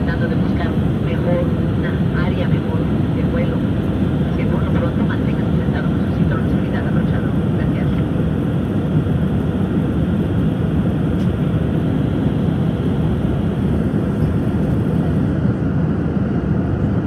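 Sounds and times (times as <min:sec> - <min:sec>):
airliner cabin engine rumble: 0:00.0 - 0:17.0.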